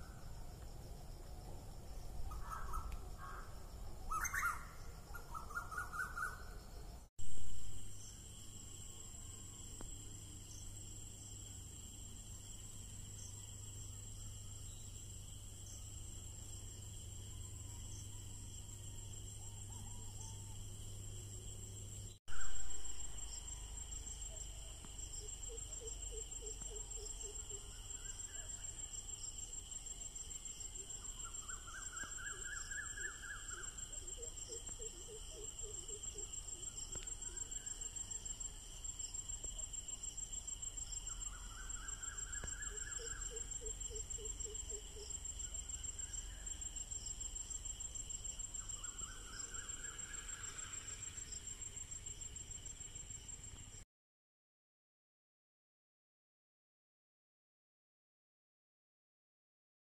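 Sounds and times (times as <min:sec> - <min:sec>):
crickets trilling: 0:00.0 - 0:53.8.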